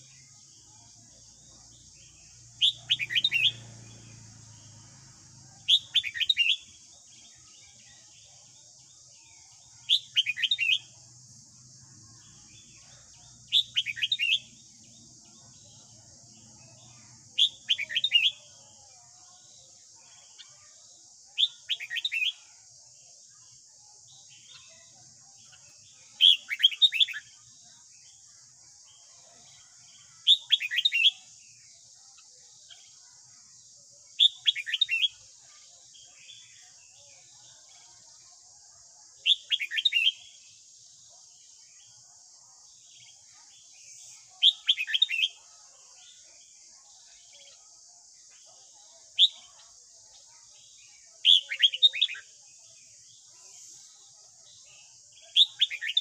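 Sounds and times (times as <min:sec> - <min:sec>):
bulbul singing whistled phrases: 0:01.8 - 0:04.1, 0:05.6 - 0:08.0, 0:09.5 - 0:11.0, 0:12.6 - 0:14.9, 0:16.6 - 0:18.6, 0:21.3 - 0:22.6, 0:24.4 - 0:27.4, 0:30.0 - 0:31.4, 0:34.2 - 0:35.3, 0:39.1 - 0:40.4, 0:42.9 - 0:46.2, 0:49.1 - 0:49.8, 0:50.6 - 0:53.9, 0:54.5 - 0:56.0.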